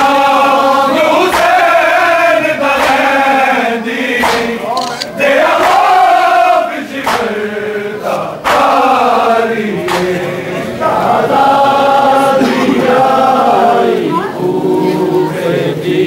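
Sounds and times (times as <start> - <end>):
men chanting a mourning lament: 0.0 - 16.0
sharp beats: 12.4 - 14.2.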